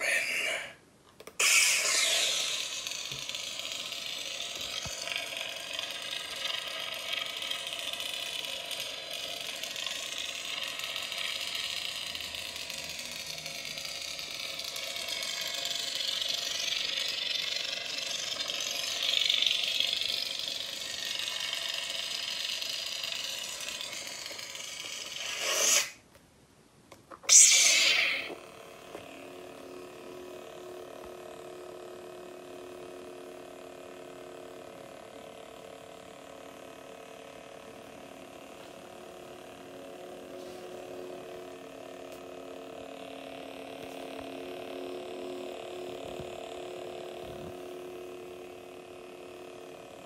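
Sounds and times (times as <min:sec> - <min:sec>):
lightsaber retraction: 0:00.0 - 0:05.1, 0:23.8 - 0:26.0, 0:27.2 - 0:28.4
lightsaber ignition: 0:00.0 - 0:26.0, 0:27.2 - 0:28.4
unstable lightsaber hum: 0:00.0 - 0:26.0, 0:27.0 - 0:50.0.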